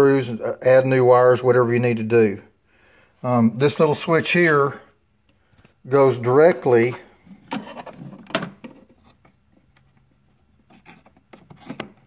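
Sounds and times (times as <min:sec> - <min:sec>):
hand scraping plywood: 0:07.3 - 0:09.2, 0:10.6 - 0:12.0.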